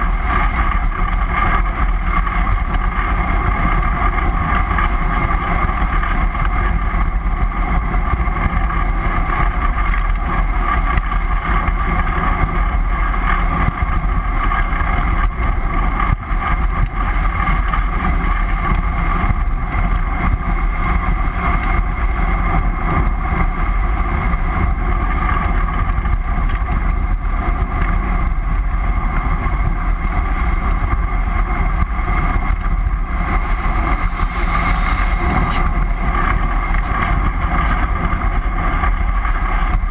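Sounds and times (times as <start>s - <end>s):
wind buffeting microphone: 27.1s - 39.9s.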